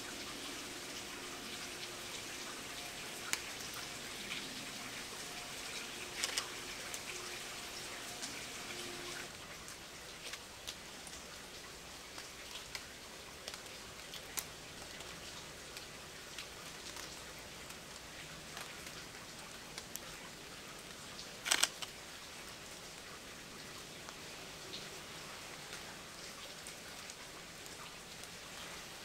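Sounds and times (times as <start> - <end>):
light rain: 0.0 - 29.0.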